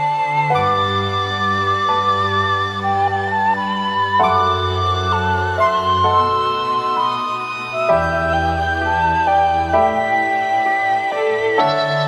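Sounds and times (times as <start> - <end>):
slow instrumental music: 0.0 - 12.0.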